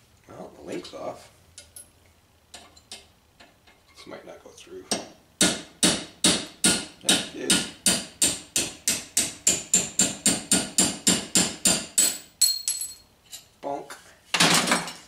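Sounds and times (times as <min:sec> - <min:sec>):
hammer striking steel punch: 0:04.9 - 0:12.6.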